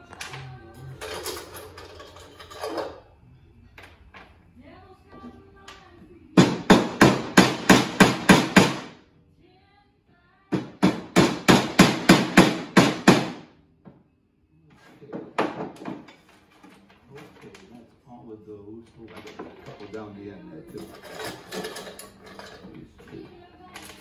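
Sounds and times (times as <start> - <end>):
hammer driving wooden dowels: 6.4 - 8.9, 10.6 - 13.4.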